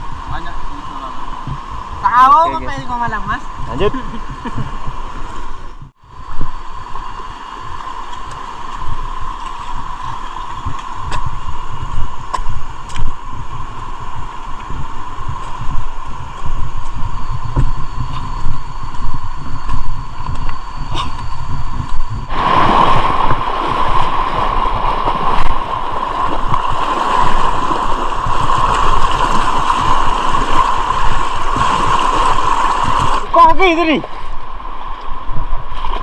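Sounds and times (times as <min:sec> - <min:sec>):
wind rumble on microphone: 0:00.0 - 0:36.0
rushing river water: 0:22.3 - 0:36.0.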